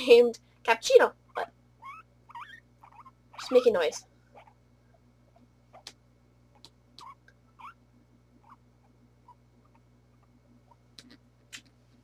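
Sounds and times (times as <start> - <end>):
guinea pig squeaking: 1.3 - 4.6, 5.3 - 6.0, 6.6 - 7.8, 8.4 - 11.7.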